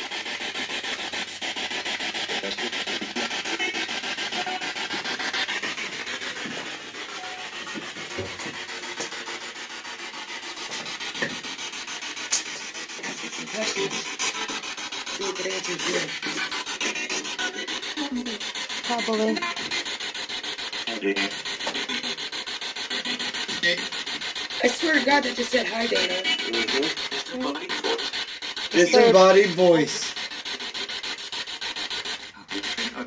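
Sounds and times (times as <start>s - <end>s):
radio scanner static sweeping: 1.0s - 9.1s, 12.4s - 31.2s, 31.8s - 33.0s
voice-like radio fragments: 25.0s - 28.1s.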